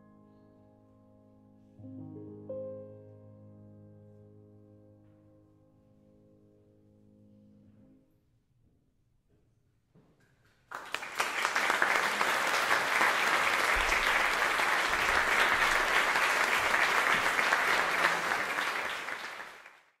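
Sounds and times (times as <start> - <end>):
audience applauding: 10.7 - 20.0.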